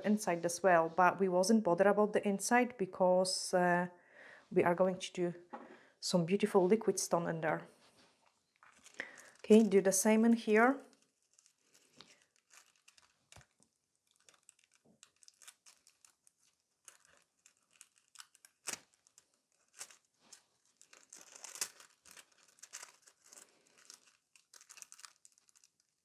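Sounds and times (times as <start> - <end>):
foil crinkling and rustling: 8.6 - 9.8, 10.8 - 26.0.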